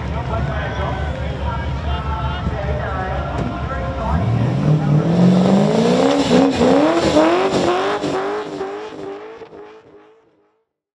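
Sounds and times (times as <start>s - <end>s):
car engine revving hard: 4.0s - 10.3s.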